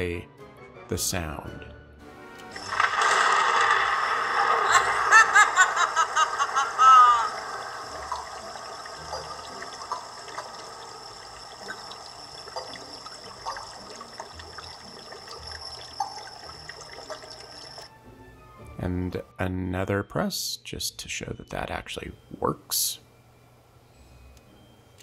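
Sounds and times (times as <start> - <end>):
water-like trickle: 7.2 - 17.9.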